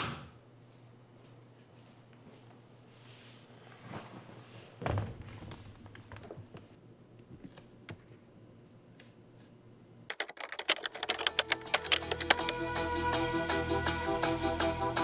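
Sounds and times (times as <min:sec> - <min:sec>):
laptop keyboard typing: 0:10.1 - 0:12.6
music: 0:11.1 - 0:15.0.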